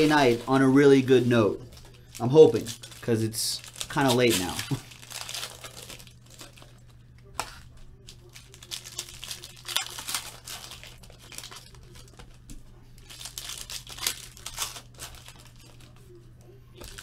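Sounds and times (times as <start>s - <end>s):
foil packs crinkling and tearing: 0.0s - 6.8s, 8.0s - 12.3s, 13.0s - 16.0s, 16.8s - 17.0s
low steady hum: 0.0s - 17.0s.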